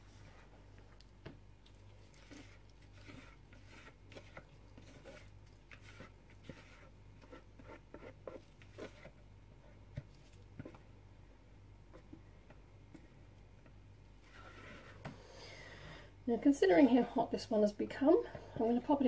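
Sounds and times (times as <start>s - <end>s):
low steady hum: 0.0s - 19.0s
spatula scraping a jug: 2.0s - 9.2s, 14.2s - 15.2s.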